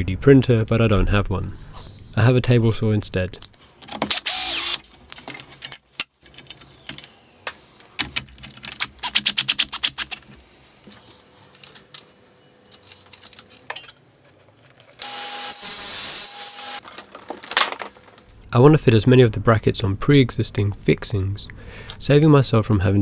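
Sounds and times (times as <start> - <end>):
drill driver clicking: 4.0 - 4.8
table saw whine: 15.0 - 16.8.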